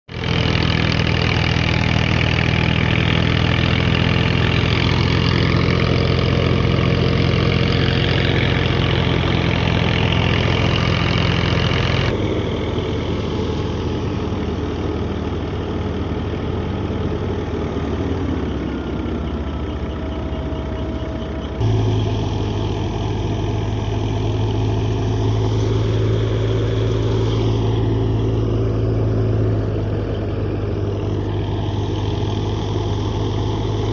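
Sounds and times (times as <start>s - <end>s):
tractor diesel engine running: 0.1s - 33.9s.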